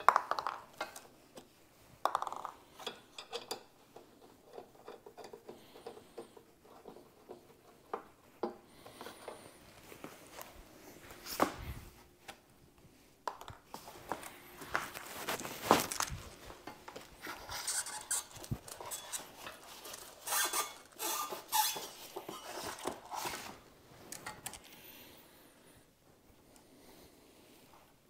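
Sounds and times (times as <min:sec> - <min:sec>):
rustling: 0:13.7 - 0:24.8.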